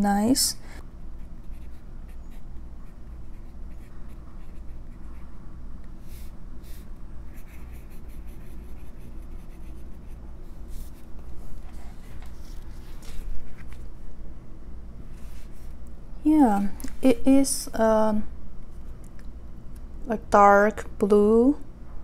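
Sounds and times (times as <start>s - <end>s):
pen nib scratching paper: 2.8s - 5.0s, 6.1s - 11.0s.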